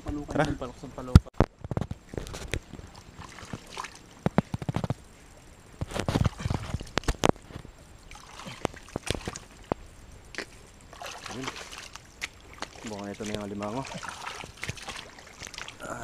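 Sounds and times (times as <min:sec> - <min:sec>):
water sloshing: 0:02.0 - 0:05.1, 0:05.8 - 0:16.0
hands squelching in mud: 0:08.1 - 0:09.6, 0:10.3 - 0:15.9.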